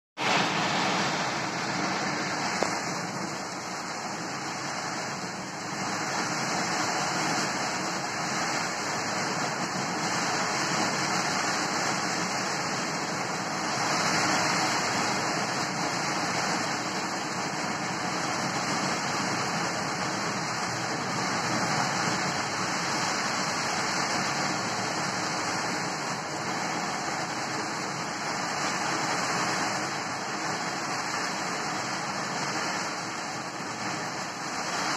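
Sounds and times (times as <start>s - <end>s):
heavy rain pouring: 0.2s - 34.9s.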